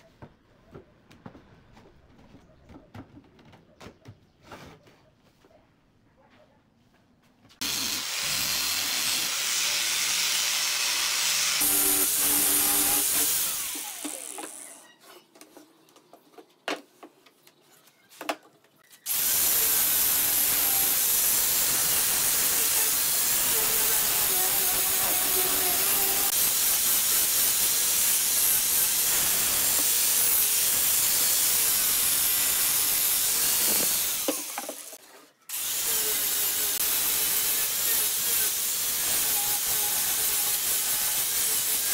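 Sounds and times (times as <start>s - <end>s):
angle grinder sanding wood: 7.6s - 14.9s, 19.1s - 41.9s.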